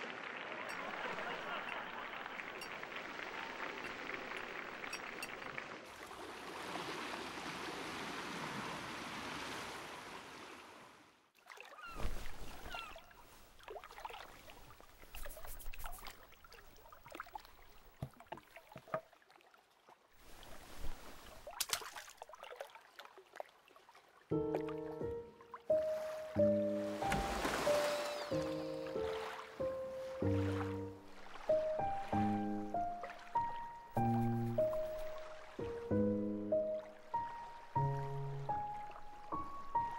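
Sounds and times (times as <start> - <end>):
water hissing: 27.0 - 29.2.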